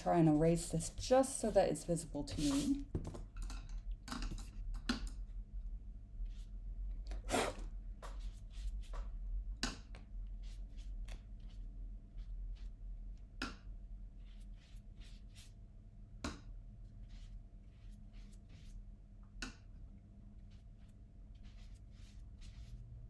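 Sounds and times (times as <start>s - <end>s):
eraser rubbing on paper: 2.3s - 2.8s, 14.2s - 15.6s, 17.0s - 18.8s, 20.5s - 23.0s.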